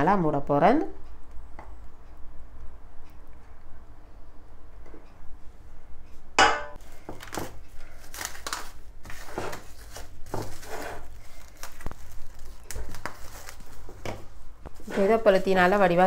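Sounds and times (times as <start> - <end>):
plastic film crinkling: 7.1 - 16.0.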